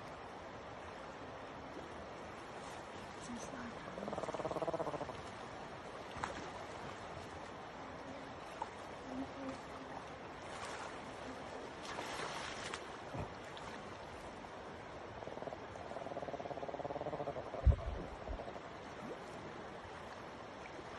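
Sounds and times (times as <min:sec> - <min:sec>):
river water rushing: 0:00.0 - 0:16.1.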